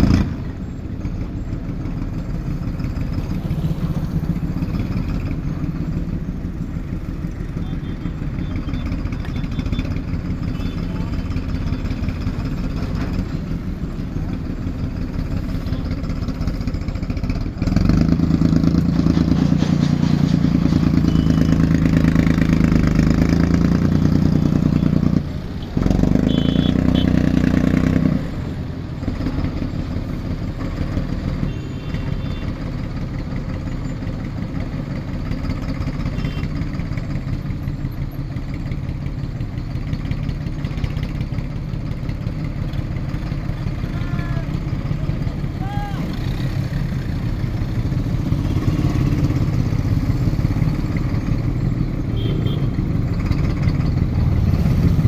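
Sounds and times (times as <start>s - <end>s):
engine revving: 0.0s - 0.5s, 14.4s - 31.5s, 42.3s - 55.0s
tractor diesel engines running: 0.0s - 55.0s.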